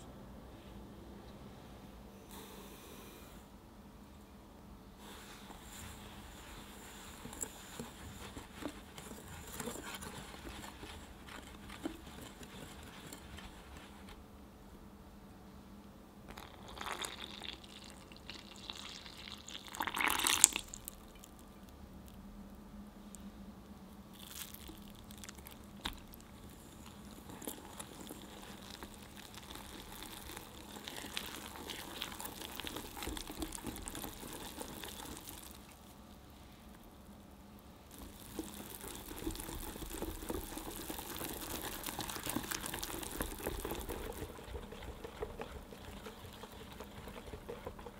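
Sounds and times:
whisk stirring wet batter: 5.0s - 14.3s, 24.2s - 35.8s, 37.9s - 47.9s
whisk scratching in glass bowl: 5.5s - 14.2s, 25.9s - 35.7s, 37.9s - 47.9s
milk pouring splash: 16.3s - 21.1s, 24.2s - 35.7s, 37.9s - 47.9s.

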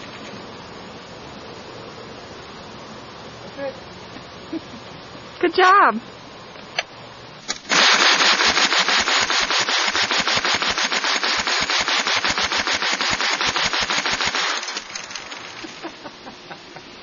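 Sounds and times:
gatling gun firing rapidly: 7.7s - 15.7s.

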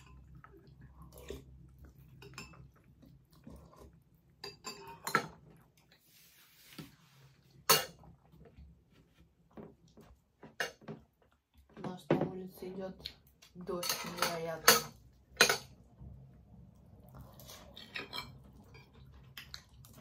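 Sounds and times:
metal utensils clinking on containers: 13.7s - 15.8s.

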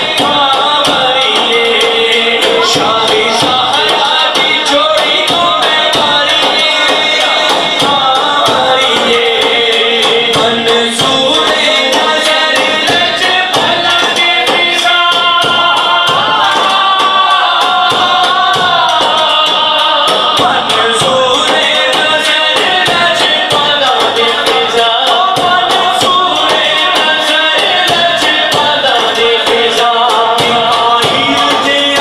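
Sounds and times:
frame drum beaten by hand: 0.0s - 32.0s
man singing into a microphone: 0.0s - 32.0s.

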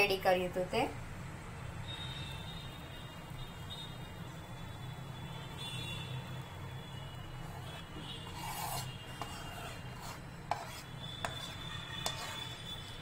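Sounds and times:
utensil scraping a metal tin: 7.4s - 13.0s.

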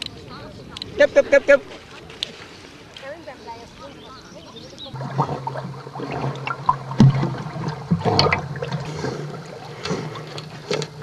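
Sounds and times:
water gurgling and sloshing: 1.6s - 11.0s
splashy clicks: 4.8s - 11.0s
steady low hum: 4.9s - 11.0s.

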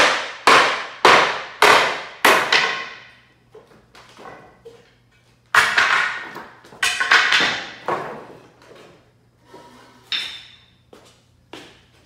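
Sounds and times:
wooden boards knocking and clattering: 0.0s - 3.1s, 5.5s - 9.0s.

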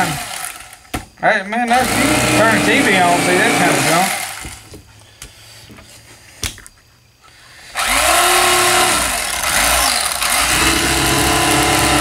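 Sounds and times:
electric knife motor running: 1.7s - 4.6s, 7.8s - 12.0s.

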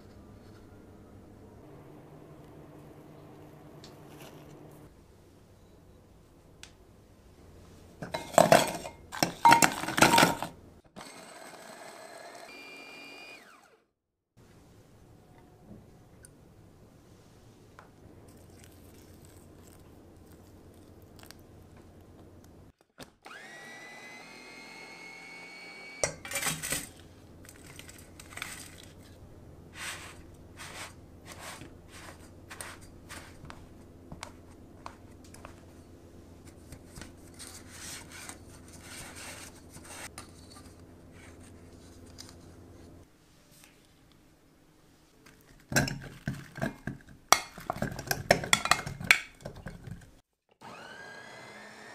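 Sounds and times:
low steady hum: 0.0s - 10.9s
food processor motor whine: 11.0s - 13.8s, 23.2s - 26.1s, 50.6s - 51.9s.

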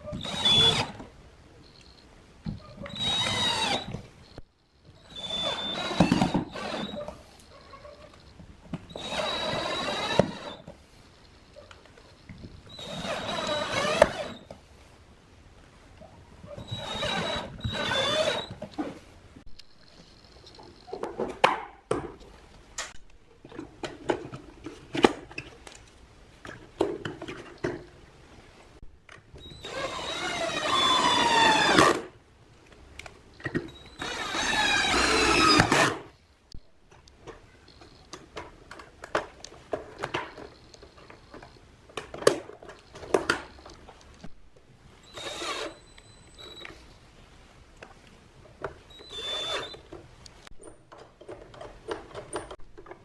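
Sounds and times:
cordless drill driving screws: 0.2s - 1.0s, 2.9s - 4.0s, 5.1s - 7.1s, 8.9s - 10.7s, 12.7s - 14.5s, 16.6s - 18.6s, 29.4s - 32.0s, 33.8s - 36.0s, 45.0s - 45.8s, 48.9s - 49.8s
plastic parts clicking and knocking: 36.9s - 44.3s, 49.8s - 53.0s.

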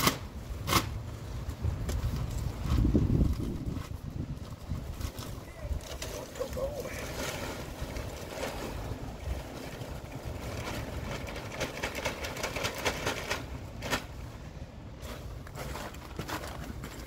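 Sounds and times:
handling rustles and crackles: 0.6s - 17.0s
wind buffeting microphone: 1.4s - 13.9s.

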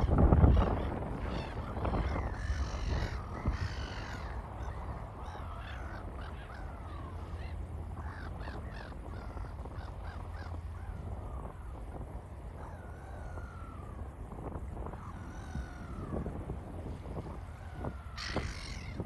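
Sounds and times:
low steady rumble: 0.0s - 19.0s
crows cawing: 1.2s - 11.0s, 17.6s - 19.0s.

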